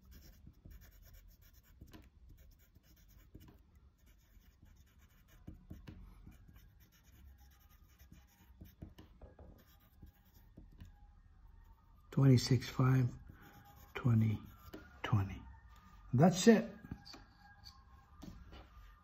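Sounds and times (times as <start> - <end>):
pencil scratching on paper: 0.0 - 10.9, 13.3 - 15.2.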